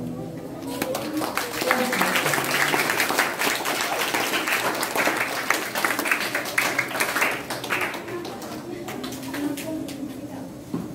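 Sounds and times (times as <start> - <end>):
crowd of children applauding: 0.6 - 9.6.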